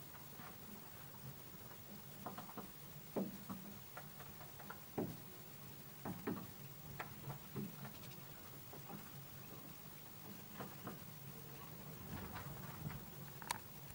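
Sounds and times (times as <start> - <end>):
faint low hum: 5.2 - 13.9.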